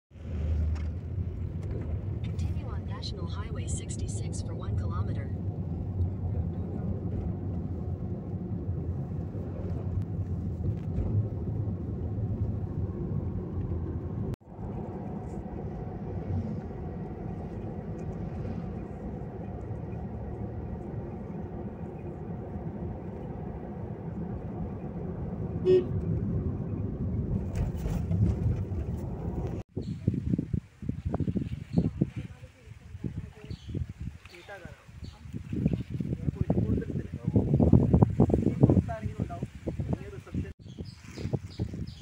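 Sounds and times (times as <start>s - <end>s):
car engine and road noise: 0.1s - 29.8s
car horn toot: 25.6s - 26.1s.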